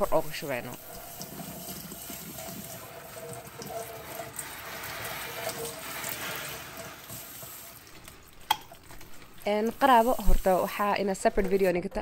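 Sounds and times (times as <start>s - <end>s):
faucet spray hissing: 0.8s - 8.0s, 9.5s - 11.8s.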